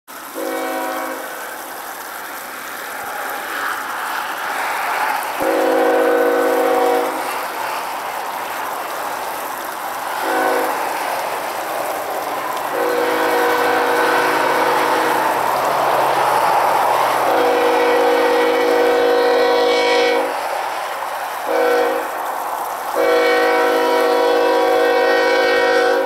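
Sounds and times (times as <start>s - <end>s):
locomotive air horn blasts: 0.3s - 1.4s, 5.4s - 7.4s, 10.1s - 11.0s, 12.7s - 15.4s, 17.2s - 20.4s, 21.4s - 22.1s, 22.9s - 26.0s.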